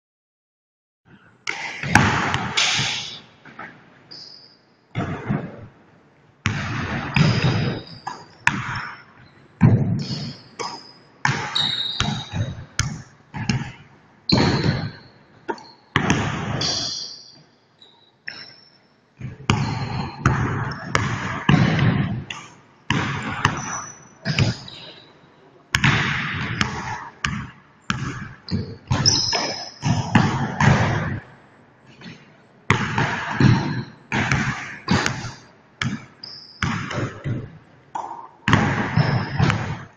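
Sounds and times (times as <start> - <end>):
shoes squeaking on court: 3.0 - 5.6, 6.9 - 13.7, 14.3 - 21.0, 23.2 - 25.3, 27.9 - 30.4, 34.8 - 39.8
basketball bouncing on wood floor: 6.4 - 9.0, 9.6 - 16.8, 19.2 - 24.6, 25.8 - 31.2, 32.0 - 39.9.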